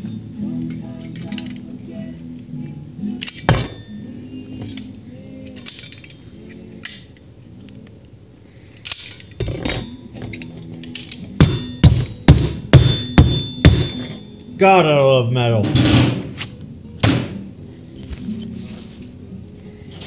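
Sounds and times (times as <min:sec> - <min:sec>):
cutlery clinking: 0:00.7 - 0:01.7, 0:08.9 - 0:14.4.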